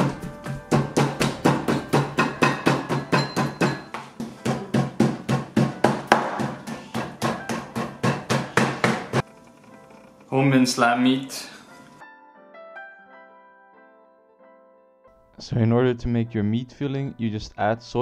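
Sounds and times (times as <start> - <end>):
cleaver chopping meat on board: 0.0 - 9.2.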